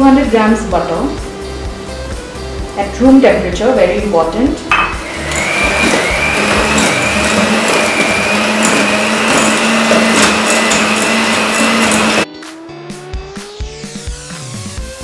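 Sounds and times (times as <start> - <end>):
electric hand mixer whining: 4.7 - 12.3.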